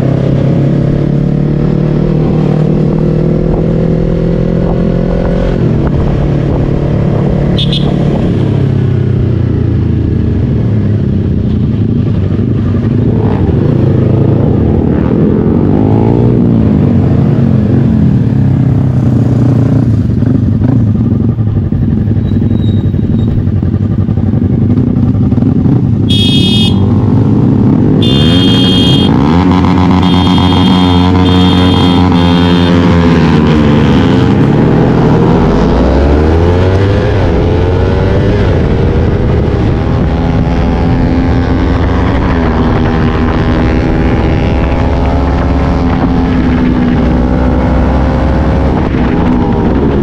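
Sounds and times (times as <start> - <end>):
motorcycle engine revving: 0.0 - 50.0
high-pitched tone blasts: 28.0 - 32.7.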